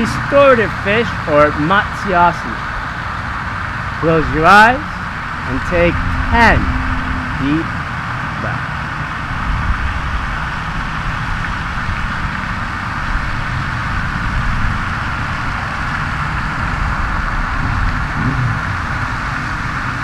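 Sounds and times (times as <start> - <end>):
low rumble: 3.9 - 19.9.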